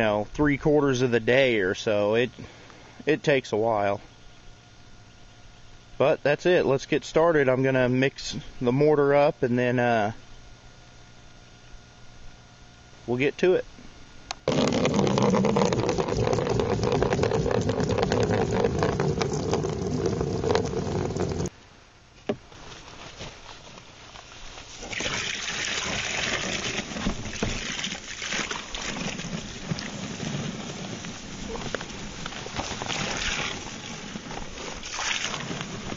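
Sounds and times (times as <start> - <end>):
dry mortar mix pouring: 14.4 - 21.5, 24.2 - 35.9
water pouring into plastic tub: 14.4 - 21.5, 24.7 - 35.9.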